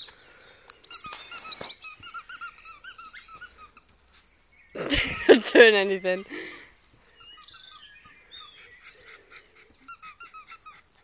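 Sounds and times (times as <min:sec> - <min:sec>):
squeaky dog toy squeaking: 0:01.3 - 0:03.9.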